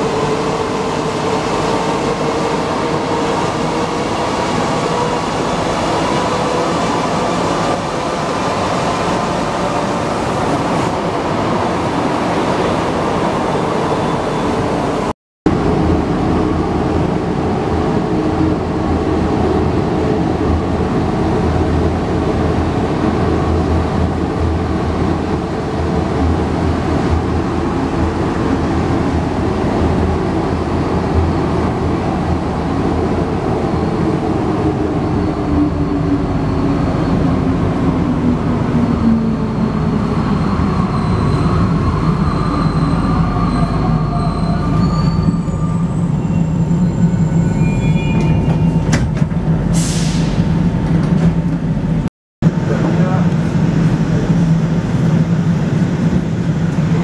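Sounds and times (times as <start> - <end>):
metro train running: 0.0 - 57.0
high brake squeals: 40.5 - 49.0.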